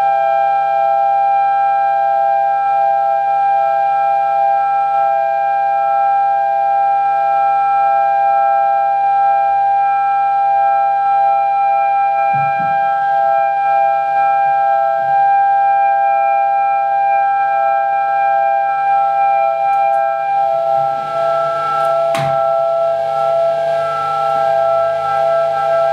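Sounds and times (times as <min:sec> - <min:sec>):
droning held tones: 0:11.2 - 0:25.9.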